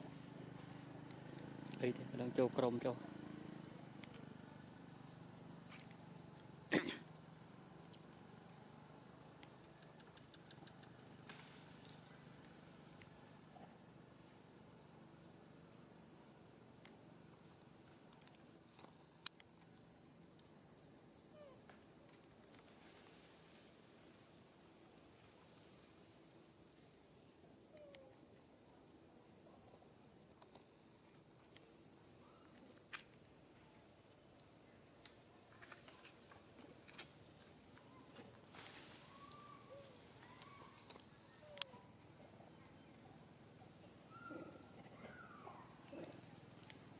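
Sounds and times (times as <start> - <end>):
high-pitched insect chorus: 0.0 - 46.9
small clicks and snaps: 9.4 - 11.0, 41.6 - 41.8
soft ticks: 9.4 - 11.0
faint chirp: 38.9 - 46.5.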